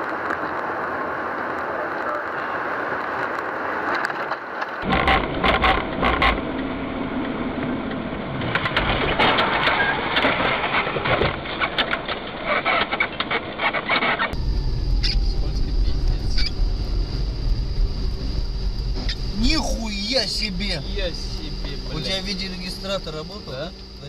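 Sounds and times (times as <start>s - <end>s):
car driving rush: 13.4s - 24.0s.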